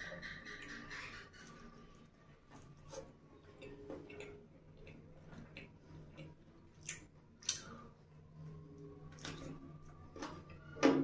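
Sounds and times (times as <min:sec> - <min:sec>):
person chewing with wet clicks: 0:02.6 - 0:10.3.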